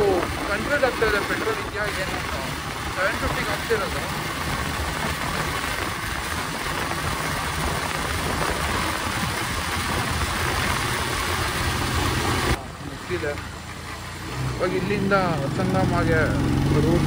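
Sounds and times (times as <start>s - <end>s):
wind rushing over microphone: 0.0s - 12.8s
motorcycle engine running: 0.0s - 17.0s
road noise: 0.0s - 17.0s.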